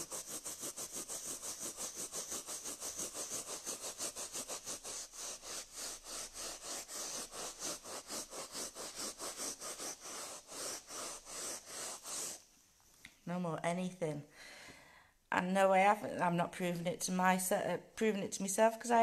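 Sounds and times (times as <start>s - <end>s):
cloth scrubbing carpet: 0.0s - 12.5s.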